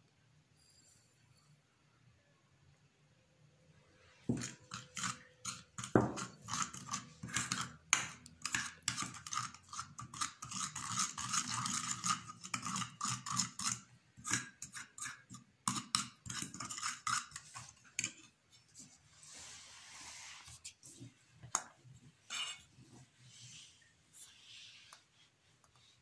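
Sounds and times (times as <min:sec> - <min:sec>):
metal spoon scraping ceramic bowl: 0:04.3 - 0:18.4, 0:22.3 - 0:22.7.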